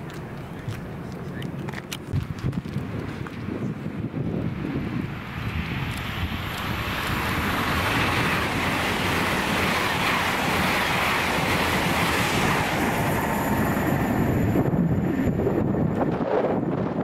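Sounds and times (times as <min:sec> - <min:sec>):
train wheels on rails: 0:04.3 - 0:17.0.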